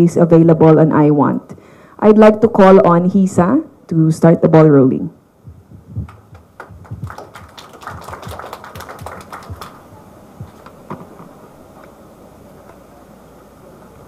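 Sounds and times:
microphone handling knocks: 0:05.5 - 0:07.2, 0:10.4 - 0:11.4.

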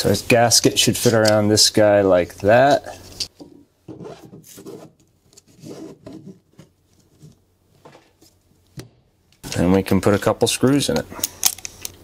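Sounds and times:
rubber scraping on plastic: 0:03.9 - 0:07.4.

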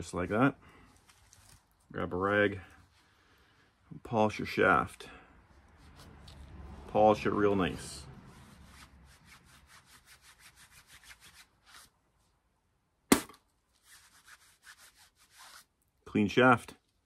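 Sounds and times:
cloth rag rubbing steel shaft: 0:07.8 - 0:12.0, 0:13.8 - 0:15.7
sharp knock: 0:13.1 - 0:13.4.

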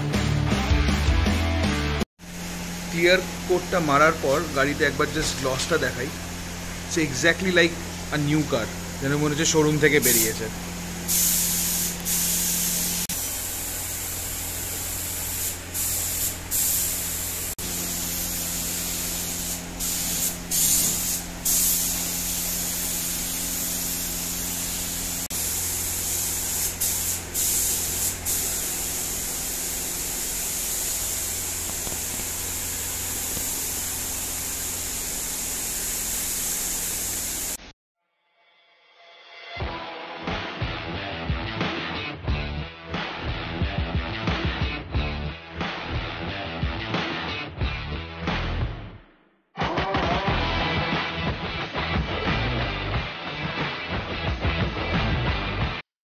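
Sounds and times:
paint spray gun hissing: 0:02.4 - 0:37.6.

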